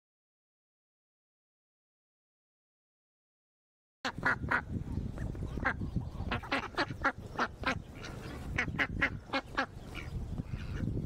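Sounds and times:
ducks quacking: 0:04.1 - 0:11.0.

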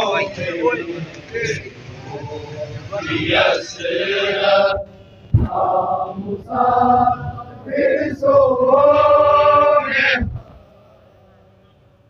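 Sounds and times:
crowd of men chanting: 0:00.0 - 0:11.4
dull thump: 0:05.3 - 0:05.6.

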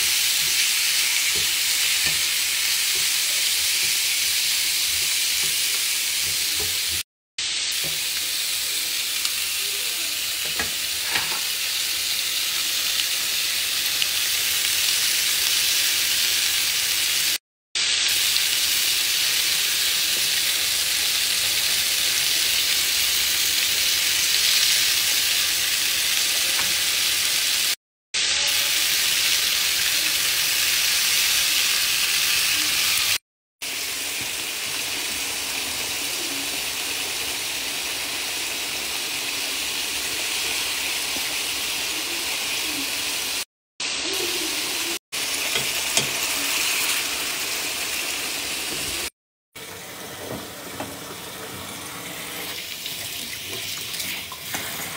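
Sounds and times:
food sizzling in frying pans: 0:00.0 - 0:54.9
tap running water into sink: 0:49.6 - 0:54.9.

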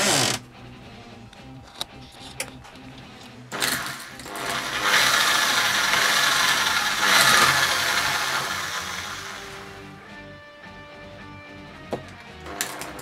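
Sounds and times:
power drill boring into plastic: 0:00.0 - 0:00.4, 0:03.6 - 0:09.8.

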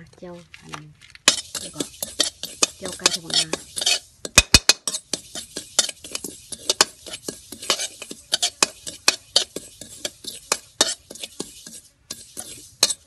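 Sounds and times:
spatula scraping a wok: 0:01.2 - 0:13.0
sharp knocks on a wok: 0:04.3 - 0:05.0.

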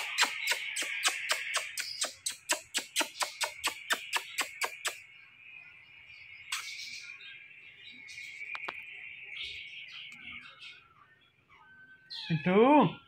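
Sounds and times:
kissing smacks: 0:00.0 - 0:05.0.

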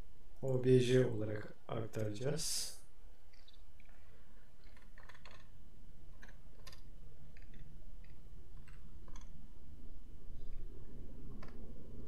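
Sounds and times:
steady low hum: 0:00.0 - 0:12.0
computer keyboard clicks: 0:04.6 - 0:05.5, 0:06.2 - 0:06.8, 0:07.4 - 0:09.3.

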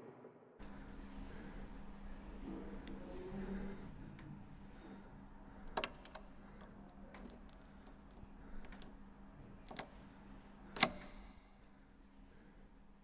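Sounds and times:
key clicking and scraping in lock: 0:05.6 - 0:09.0, 0:09.6 - 0:10.0, 0:10.7 - 0:11.3.

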